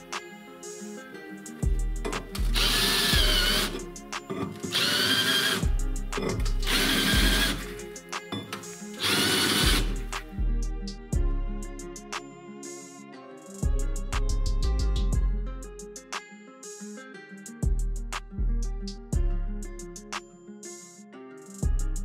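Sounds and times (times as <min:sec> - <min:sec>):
cordless drill cutting steel: 0:02.0 - 0:10.1.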